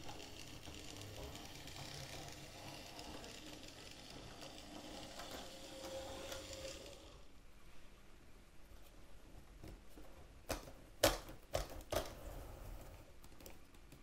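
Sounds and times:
wheels clicking on track: 0:00.0 - 0:07.2
model train motor whirring: 0:00.0 - 0:07.3.

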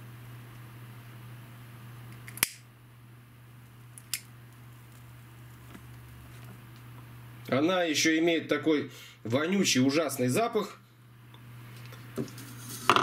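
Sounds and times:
low steady hum: 0:00.0 - 0:13.0
lighter clicking: 0:02.1 - 0:02.6, 0:04.0 - 0:04.3.

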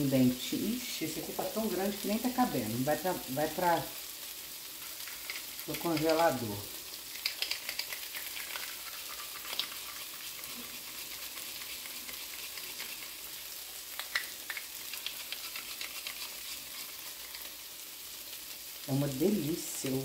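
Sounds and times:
chicken sizzling in a frying pan: 0:00.0 - 0:20.0
grater clicking and scraping: 0:14.1 - 0:17.5.

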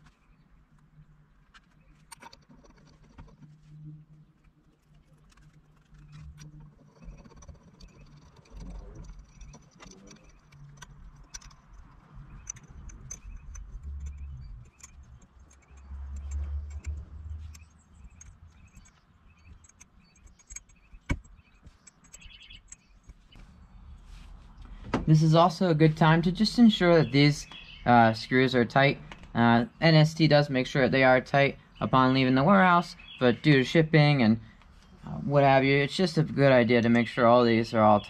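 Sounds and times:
hand tool clicking on screws: 0:06.0 - 0:23.2
low handling bumps: 0:06.2 - 0:29.7.

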